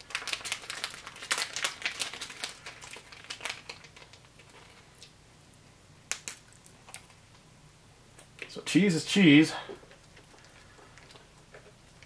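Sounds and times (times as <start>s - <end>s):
plastic and foil packaging crinkling: 0.0s - 5.1s.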